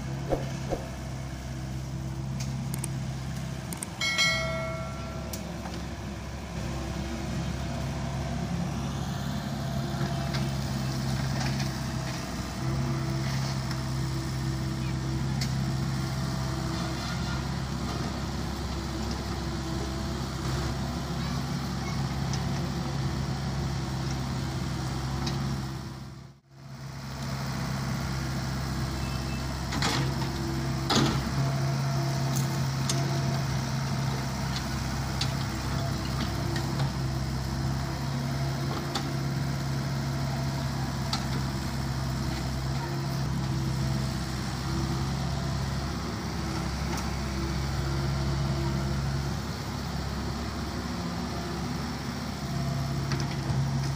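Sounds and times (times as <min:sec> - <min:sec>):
excavator diesel engine running: 0:00.0 - 0:53.9.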